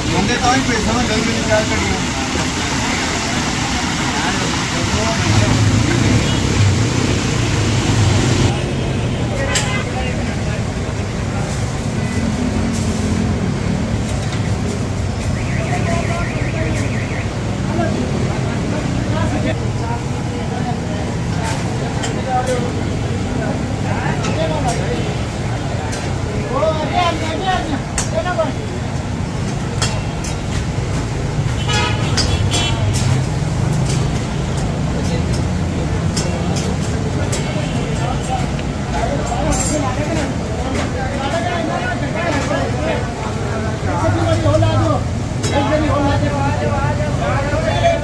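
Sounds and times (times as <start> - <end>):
passing vehicles engine rumble: 0.0 - 9.4
vehicle horn tooting: 9.3 - 10.0, 31.6 - 32.9
metal utensils clinking on woks: 21.3 - 23.2, 29.0 - 43.1.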